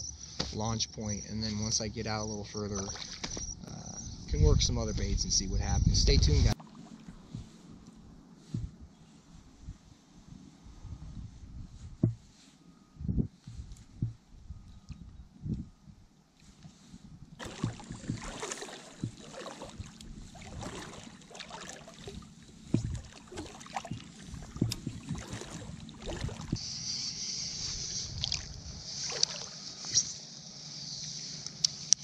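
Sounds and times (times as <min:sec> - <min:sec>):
water splashing and sloshing: 0:02.1 - 0:04.3, 0:06.1 - 0:10.4, 0:16.2 - 0:26.6, 0:27.7 - 0:30.1
steady high hiss: 0:26.6 - 0:32.0.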